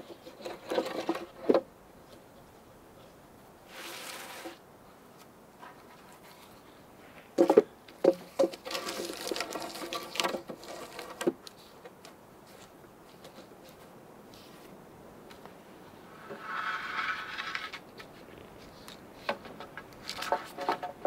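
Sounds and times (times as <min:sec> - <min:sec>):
wood scraping on wood: 0:00.0 - 0:01.6, 0:03.7 - 0:04.6, 0:05.6 - 0:14.7, 0:16.1 - 0:21.0
wooden logs knocking together: 0:00.0 - 0:01.7, 0:07.3 - 0:12.1, 0:19.2 - 0:21.0.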